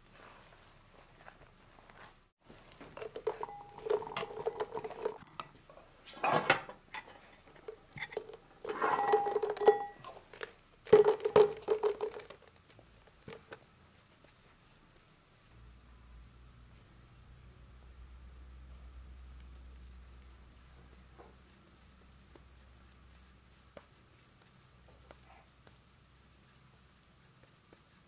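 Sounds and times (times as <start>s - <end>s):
dried fruit clattering into bowl: 2.9s - 5.3s, 7.4s - 12.6s.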